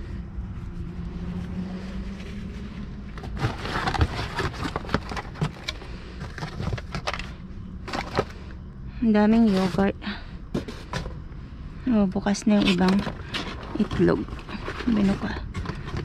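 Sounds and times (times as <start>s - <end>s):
steady low hum: 0.0s - 16.0s
cardboard and plastic cups rustling: 3.1s - 8.6s, 9.2s - 11.3s, 12.2s - 16.0s.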